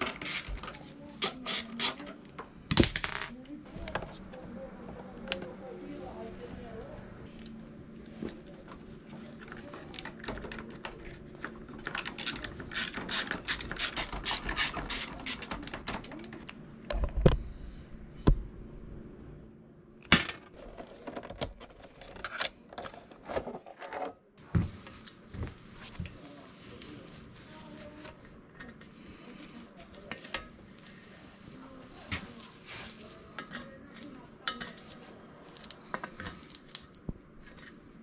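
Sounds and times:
ratchet clicking: 12.0s - 15.5s.

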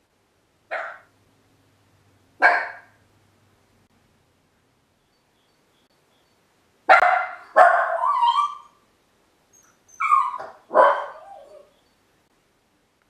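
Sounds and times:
small dog barking: 0.7s - 1.1s, 2.4s - 3.0s, 6.9s - 8.8s, 10.0s - 11.7s.

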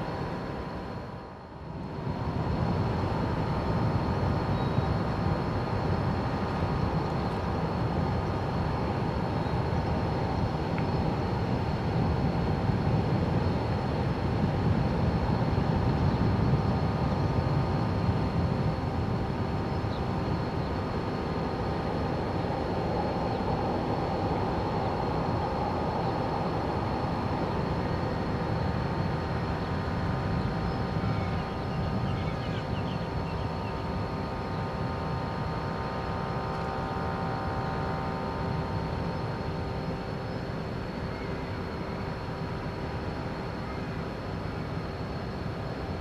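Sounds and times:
ship machinery drone: 0.0s - 46.0s.

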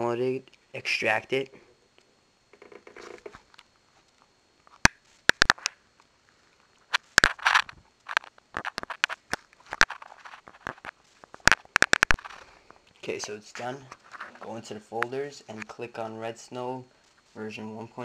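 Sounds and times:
sharp clicks and crackles: 2.0s - 6.1s, 6.7s - 13.1s.

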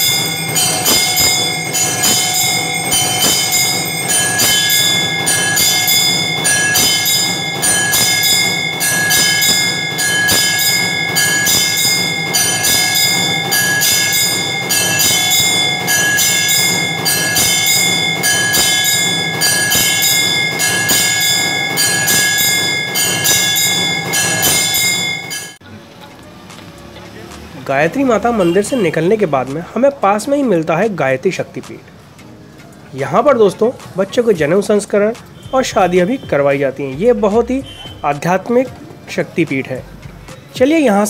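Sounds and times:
temple bell ringing: 0.0s - 25.6s.

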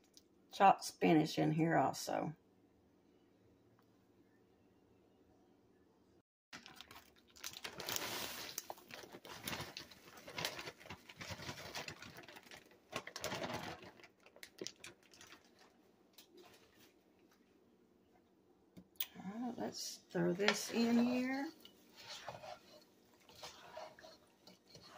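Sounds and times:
frozen spinach pattering into pot: 6.6s - 16.9s
plastic bag crinkling: 6.6s - 16.9s.

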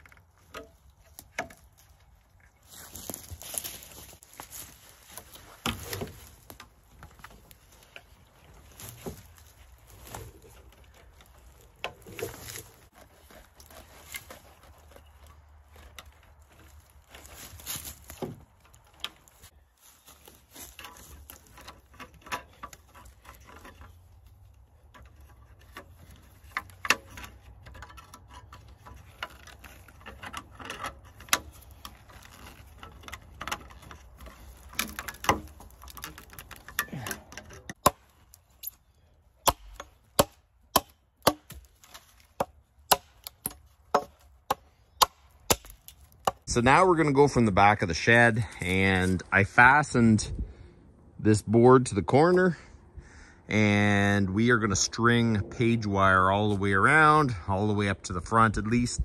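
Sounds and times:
clicks and knocks of fence work: 0.0s - 46.6s.

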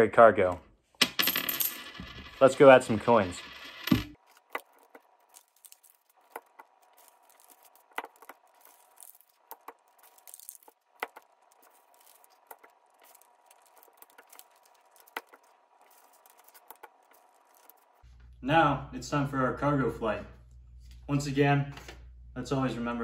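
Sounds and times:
paper crinkling: 4.2s - 18.1s.

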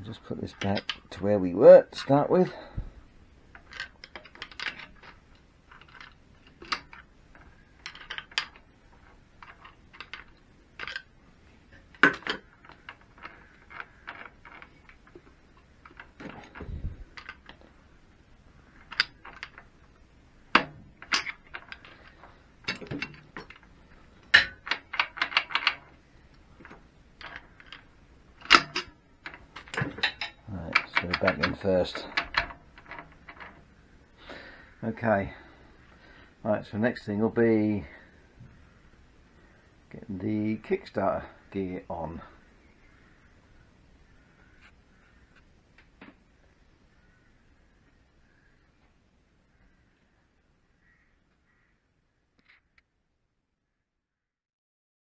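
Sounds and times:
metallic gearbox clicks and clatter: 24.3s - 25.9s, 26.6s - 33.6s.

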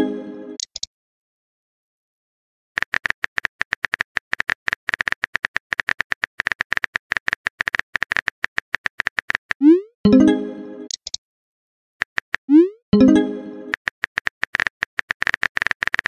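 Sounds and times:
simulated typing clicks: 0.6s - 0.9s, 2.8s - 9.7s, 10.9s - 11.2s, 12.0s - 12.6s, 13.7s - 16.0s.

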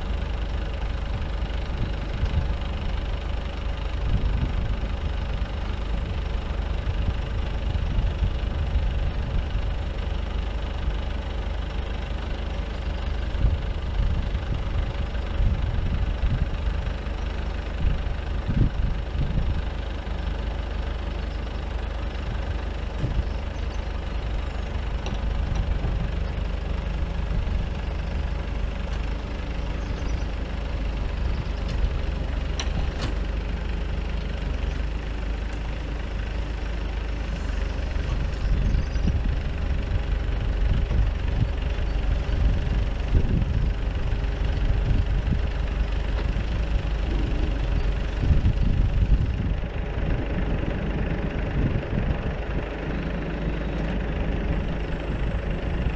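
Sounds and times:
diesel engine idling: 0.0s - 55.9s
hydraulic leg lowering: 31.6s - 33.5s.

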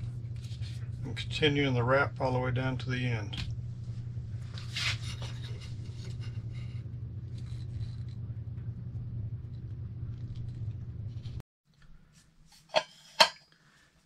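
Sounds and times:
steady low hum: 0.0s - 13.8s
hands rubbing taped tube: 4.5s - 6.4s.

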